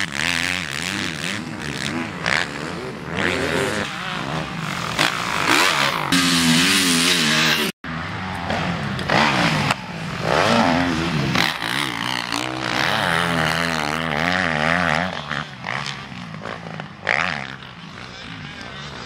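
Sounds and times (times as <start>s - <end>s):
dirt bike engines revving: 0.0s - 19.0s.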